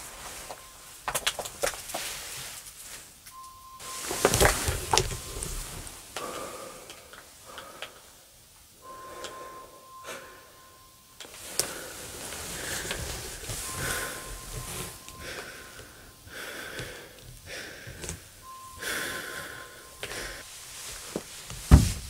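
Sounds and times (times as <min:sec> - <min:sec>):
faint high tone: 0:00.0 - 0:01.0, 0:03.2 - 0:06.8, 0:08.8 - 0:16.7, 0:18.4 - 0:20.5
rustling of cloth and bags: 0:00.0 - 0:07.6, 0:10.8 - 0:22.0.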